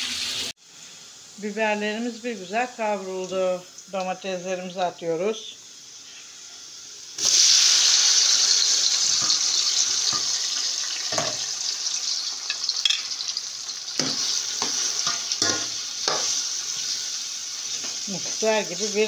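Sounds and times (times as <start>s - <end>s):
vegetables sizzling in hot oil: 0.0s - 19.0s.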